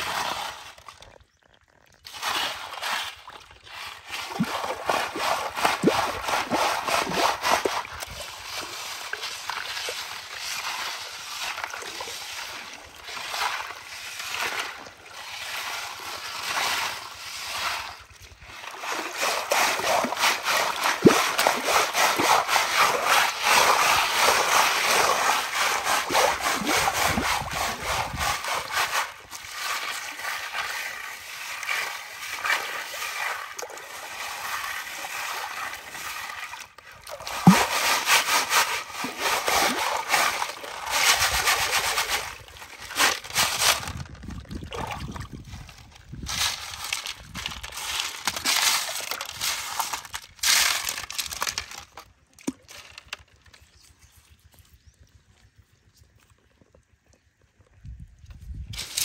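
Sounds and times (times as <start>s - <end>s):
muddy water sloshing and splashing: 0.0s - 54.8s
stones rattling on metal sieve: 18.4s - 44.3s, 46.1s - 52.1s, 58.7s - 59.0s.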